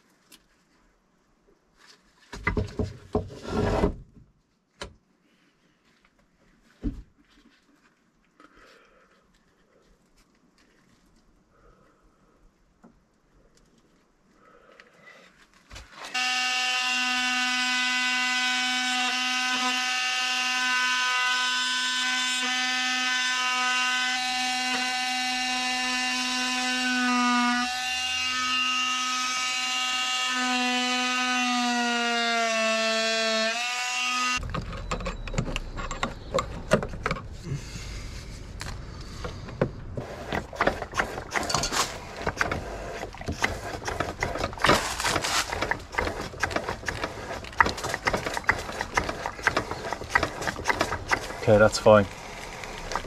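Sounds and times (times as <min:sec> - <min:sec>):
oscillating multi-tool cutting wood: 0:16.1 - 0:34.4, 0:40.0 - 0:53.0.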